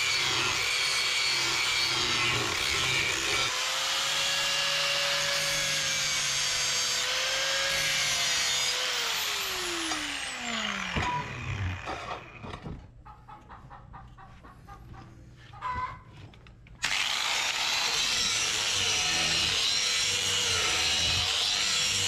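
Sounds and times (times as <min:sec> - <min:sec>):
angle grinder grinding steel: 0:00.0 - 0:12.5, 0:16.8 - 0:22.0
grinder whine spinning down: 0:09.1 - 0:12.3.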